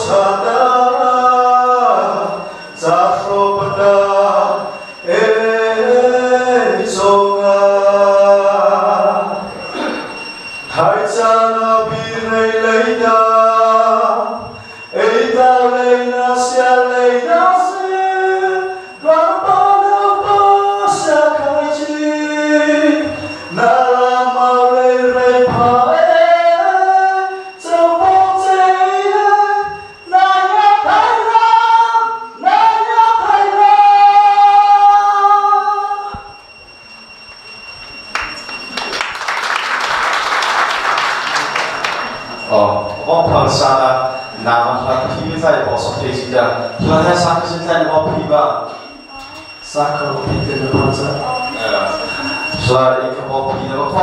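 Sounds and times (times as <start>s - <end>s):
man singing a cappella: 0.0s - 9.5s, 10.8s - 36.2s
audience applauding: 38.1s - 42.4s.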